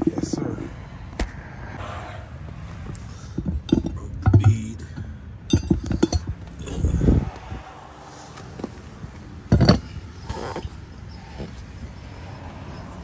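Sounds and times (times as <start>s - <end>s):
metal scraping on pavement: 1.6s - 13.0s
metal clinks and knocks: 3.2s - 6.6s, 8.6s - 13.0s.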